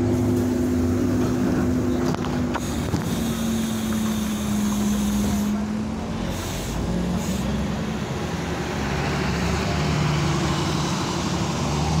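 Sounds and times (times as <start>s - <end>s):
diesel engine humming: 0.0s - 12.0s
street traffic: 0.0s - 12.0s.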